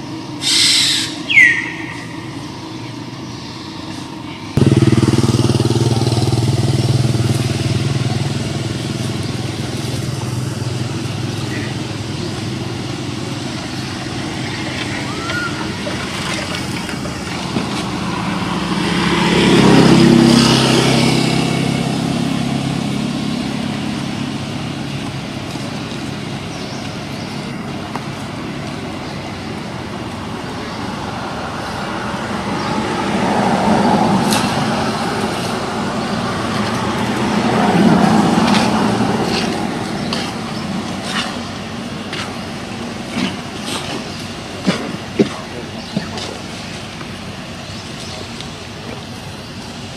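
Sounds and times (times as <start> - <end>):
road traffic passing: 0.0 - 49.9.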